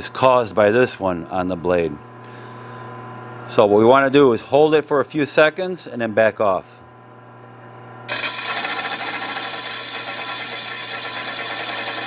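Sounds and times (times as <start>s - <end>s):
meat slicer motor hum: 8.1s - 12.0s.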